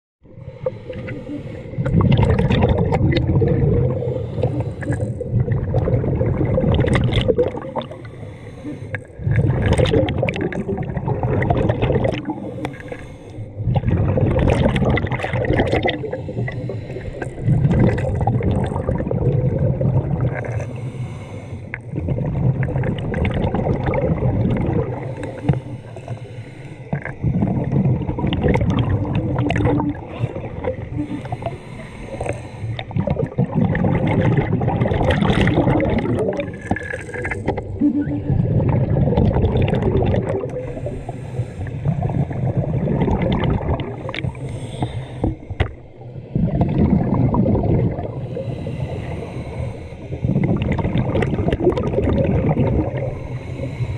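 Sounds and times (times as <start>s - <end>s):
gurgling exhaled bubbles: 0.3s - 53.9s
regulator inhales: 7.9s - 9.0s, 12.4s - 13.6s, 16.1s - 17.3s, 20.6s - 21.8s, 25.1s - 26.9s, 31.0s - 32.9s, 40.6s - 42.4s, 44.0s - 45.9s, 48.2s - 50.3s, 53.1s - 53.9s.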